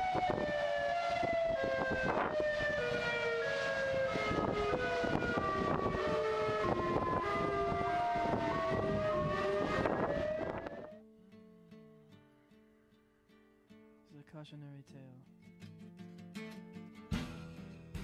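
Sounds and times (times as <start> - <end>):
eerie sliding melody: 0.0 - 11.0.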